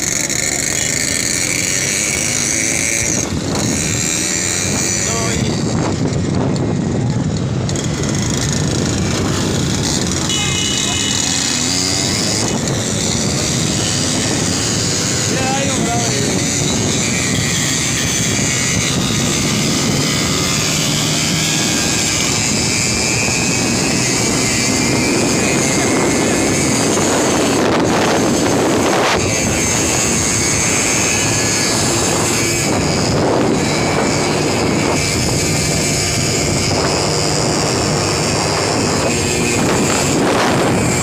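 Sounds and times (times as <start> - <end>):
motorcycle engine at high revs: 0.0 - 41.0
wind rushing over microphone: 0.0 - 41.0.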